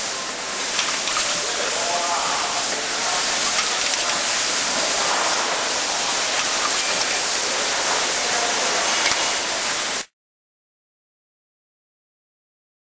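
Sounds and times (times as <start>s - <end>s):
packaging machine hissing: 0.0s - 10.0s.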